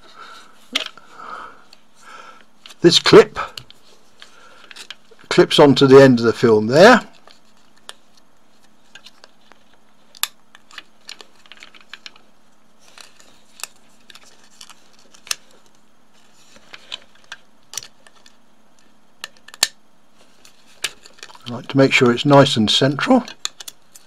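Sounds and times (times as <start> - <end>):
sharp plastic snaps: 19.2 - 19.8.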